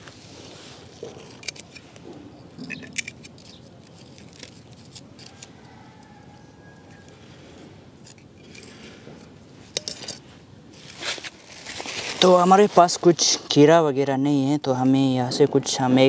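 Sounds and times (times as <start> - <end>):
machete scraping bamboo: 0.0 - 7.4, 8.0 - 13.6.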